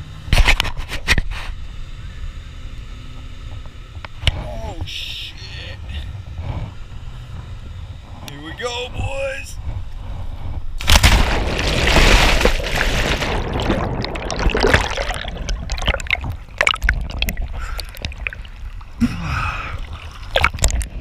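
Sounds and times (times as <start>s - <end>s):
water rushing and bubbling: 10.8s - 21.0s
water sloshing: 10.8s - 21.0s
water drips: 13.3s - 19.0s.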